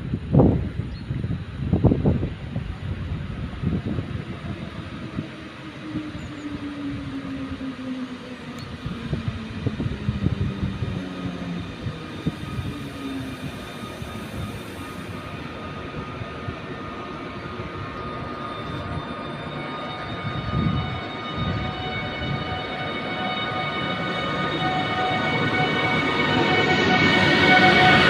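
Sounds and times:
electric locomotive drive whine: 0:00.0 - 0:28.0
steady high tones: 0:16.7 - 0:28.0.

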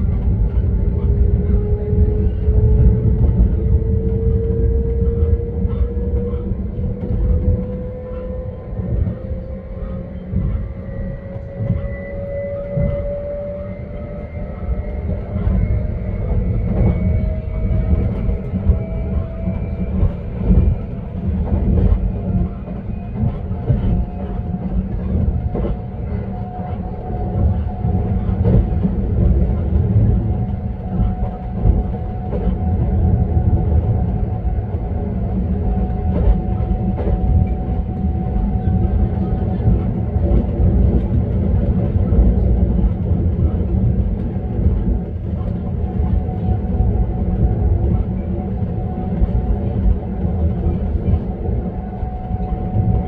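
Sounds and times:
train rumbling on rails: 0:00.0 - 0:53.0.

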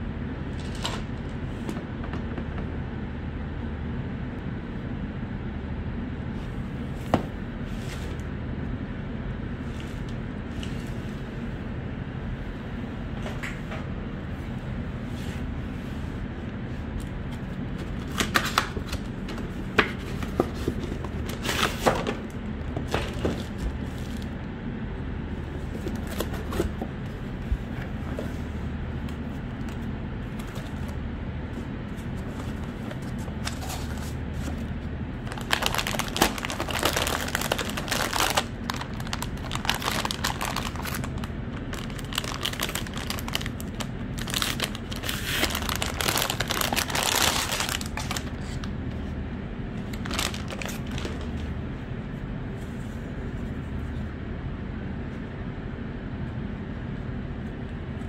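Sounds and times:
plastic crinkling: 0:32.0 - 0:48.7, 0:49.8 - 0:51.5.

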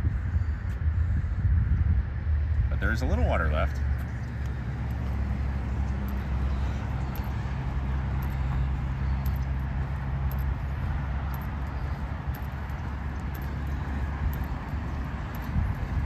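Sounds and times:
steady low rumble: 0:00.0 - 0:16.0
footsteps on path: 0:03.8 - 0:16.0.

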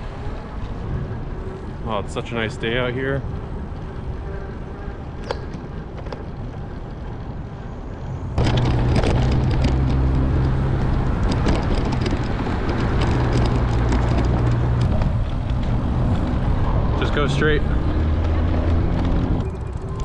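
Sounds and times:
bicycle rattling over pavement: 0:00.0 - 0:20.0
wind on microphone: 0:00.0 - 0:20.0.

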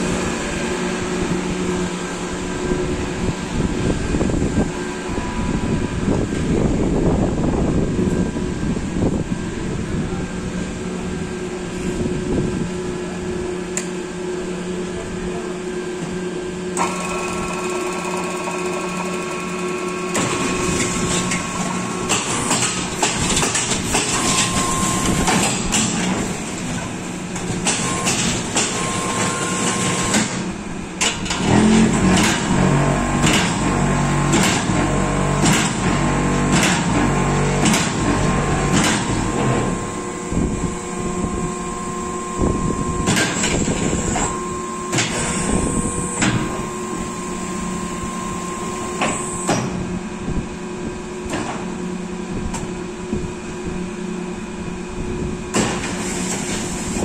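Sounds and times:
machine motor hum: 0:00.0 - 0:57.0
heavy low rumble: 0:31.8 - 0:49.0.

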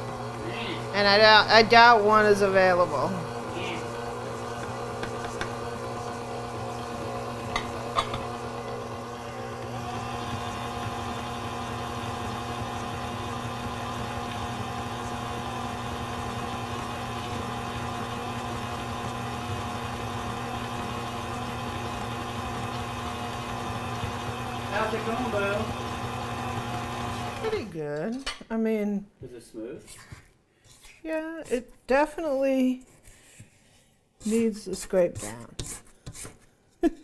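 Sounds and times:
stand mixer motor humming: 0:00.0 - 0:27.8.

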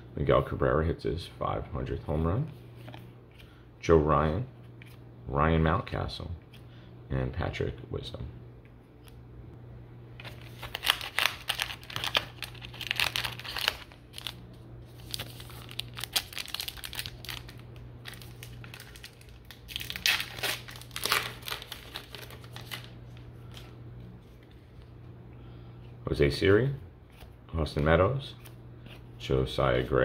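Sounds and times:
plastic wrapper crinkling and tearing: 0:10.2 - 0:23.7.

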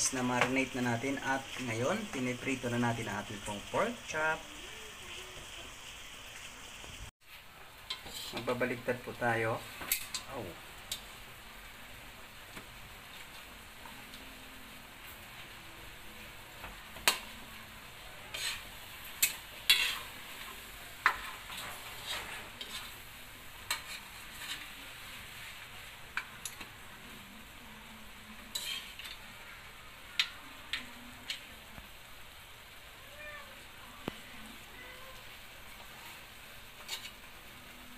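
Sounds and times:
pork chops sizzling in a wok: 0:00.0 - 0:37.9
metal tongs scraping a pan: 0:07.9 - 0:08.7, 0:09.8 - 0:11.0, 0:18.2 - 0:23.0, 0:23.6 - 0:26.8, 0:28.4 - 0:29.4, 0:36.8 - 0:37.3.

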